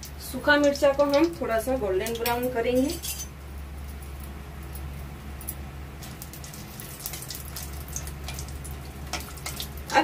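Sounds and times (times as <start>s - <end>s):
chillies sizzling in oil: 0.0s - 3.4s, 5.8s - 10.0s
steady low hum: 0.0s - 10.0s
spatula stirring: 6.0s - 10.0s.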